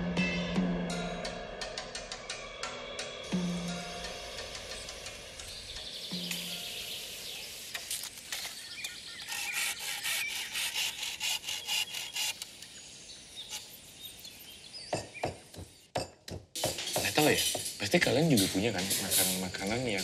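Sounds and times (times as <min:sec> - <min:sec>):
steady outdoor hiss: 0:01.2 - 0:20.0
hand saw cutting bamboo: 0:09.2 - 0:12.6.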